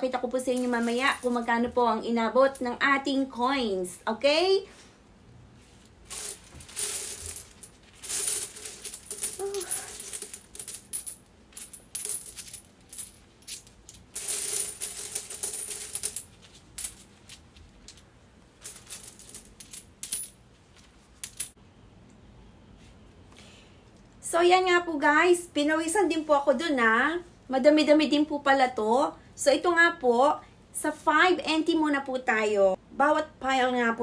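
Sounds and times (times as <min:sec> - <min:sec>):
coins clinking and rattling: 0:00.4 - 0:01.5, 0:06.1 - 0:18.0, 0:18.6 - 0:20.4, 0:21.2 - 0:21.6.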